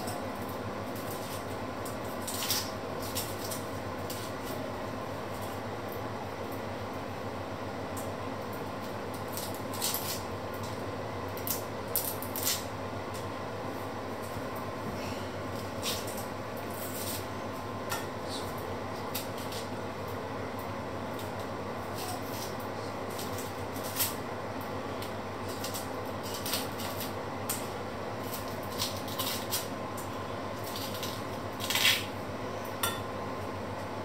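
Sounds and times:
steady background hum: 0.0 - 34.0
knife scraping onion skin: 2.2 - 4.6, 9.3 - 10.3, 11.4 - 12.7, 21.9 - 24.2, 25.4 - 29.7, 30.6 - 32.1.

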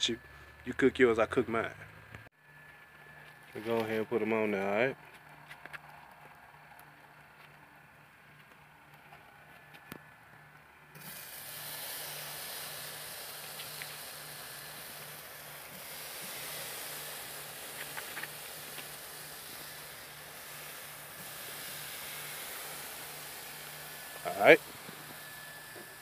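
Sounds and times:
steaks sizzling on a grill: 11.0 - 26.0.

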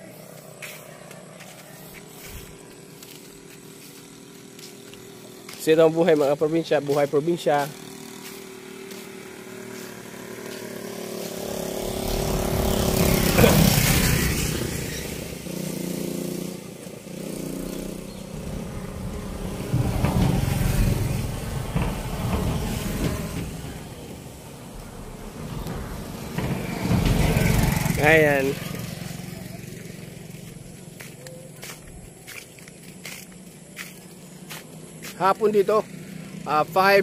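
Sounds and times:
motorcycles passing by: 0.0 - 37.0.

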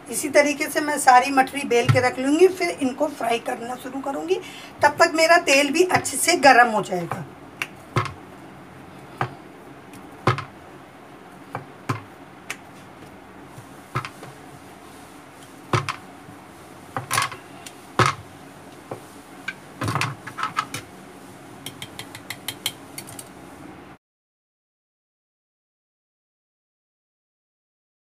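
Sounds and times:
rolling pin knocking on board: 7.9 - 8.2, 10.2 - 10.5, 11.5 - 12.1, 13.9 - 14.3, 15.7 - 16.0, 18.0 - 18.2.

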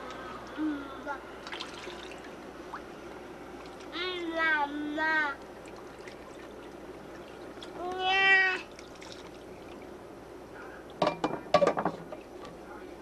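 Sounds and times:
child's high-pitched call: 7.8 - 8.7.

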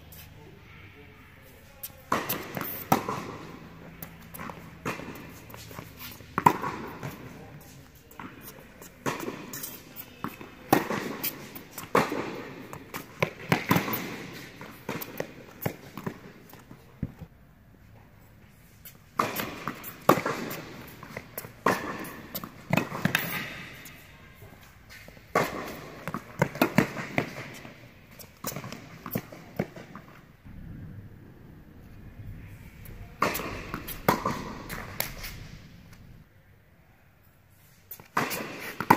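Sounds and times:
tennis ball struck by rackets: 2.1 - 7.4, 9.0 - 16.3, 19.2 - 24.0, 25.0 - 30.6, 32.8 - 36.2, 38.0 - 38.9
tennis ball bouncing on court: 2.1 - 17.2, 19.2 - 24.0, 24.6 - 30.6, 32.8 - 36.1, 38.0 - 38.9.

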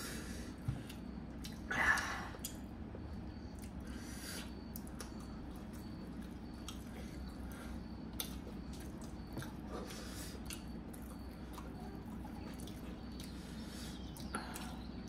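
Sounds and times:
people chewing and eating: 0.0 - 15.0
steady low hum: 0.0 - 15.0.

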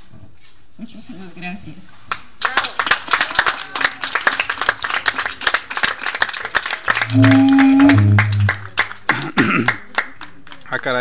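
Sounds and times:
crowd applauding: 2.5 - 10.8
loud low two-pitch tone: 7.0 - 8.8.

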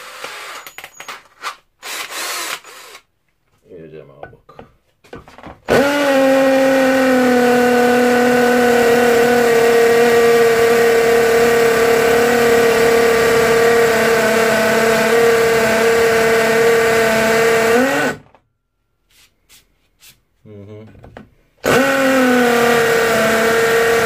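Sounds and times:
hammer drill grinding into concrete: 0.0 - 3.1, 5.6 - 18.3, 21.6 - 24.0.

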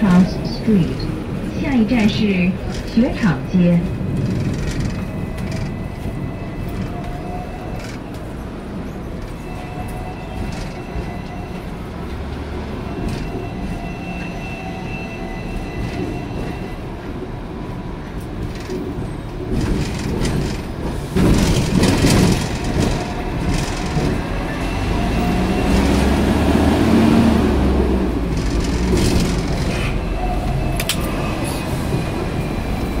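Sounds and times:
tram wheels rumbling on rails: 0.0 - 33.0
rattling clatter over track: 2.0 - 5.8, 10.4 - 11.4, 18.2 - 26.2, 26.9 - 30.2.

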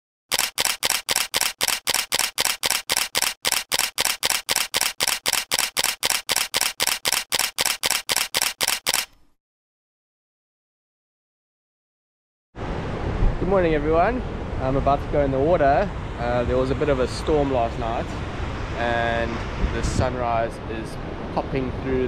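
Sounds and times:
camera shutter burst clicks: 0.3 - 9.3.

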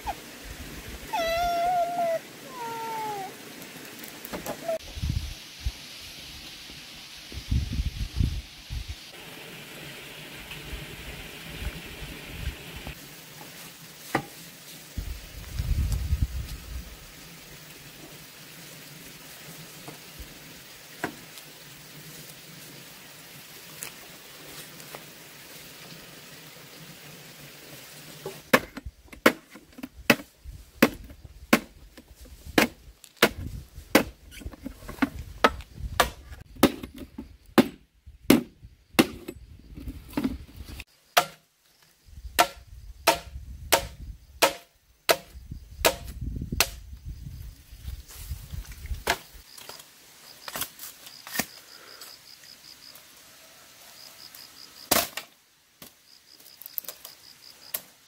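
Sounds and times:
sharp chopping strikes: 42.4 - 46.8.

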